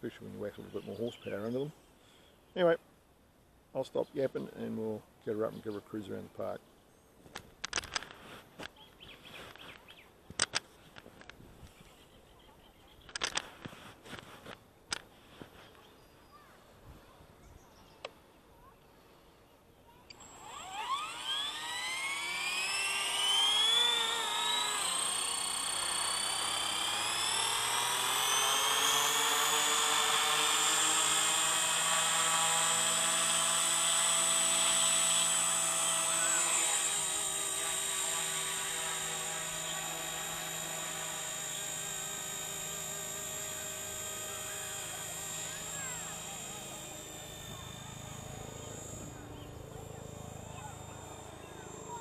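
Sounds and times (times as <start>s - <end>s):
rc helicopter motor whine: 7.3s - 15.9s, 19.9s - 52.0s.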